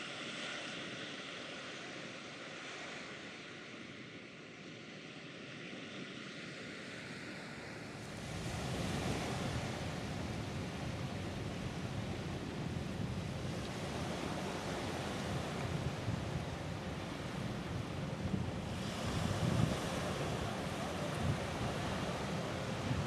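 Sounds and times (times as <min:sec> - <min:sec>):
wind blowing across microphone: 0:05.6 - 0:23.0.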